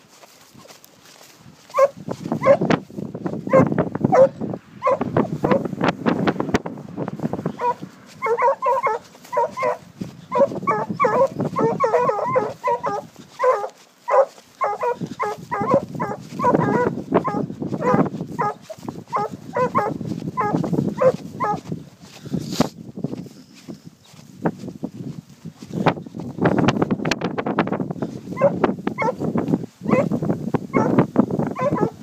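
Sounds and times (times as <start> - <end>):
hounds yelping barks: 0.6 - 2.8, 3.4 - 5.7, 7.4 - 21.7, 28.3 - 32.0.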